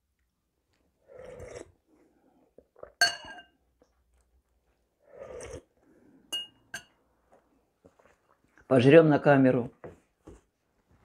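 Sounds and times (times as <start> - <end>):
slurping soup from a spoon: 0.8 - 3.0, 4.9 - 5.8
spoon clinking against bowl: 3.0 - 3.5, 6.3 - 7.0
faint chewing: 7.2 - 8.7.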